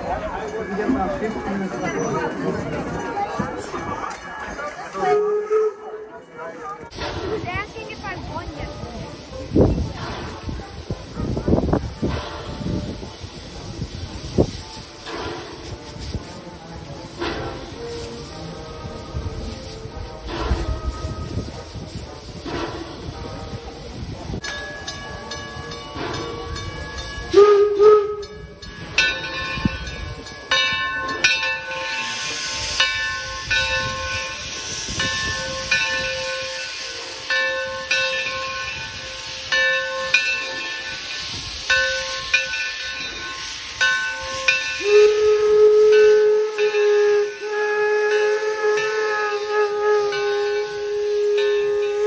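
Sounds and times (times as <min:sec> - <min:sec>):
steam hissing in regular beats: 0:06.9 - 0:52.0
steam whistle: 0:27.2 - 0:28.6, 0:41.2 - 0:52.0.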